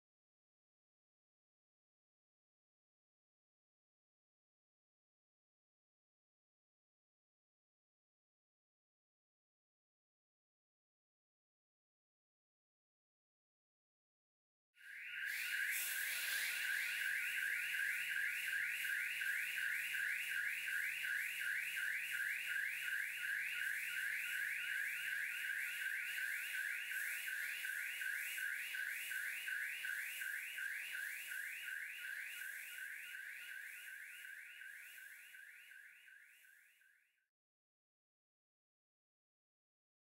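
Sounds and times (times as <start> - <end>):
electronic alarm siren: 14.8 - 37.2.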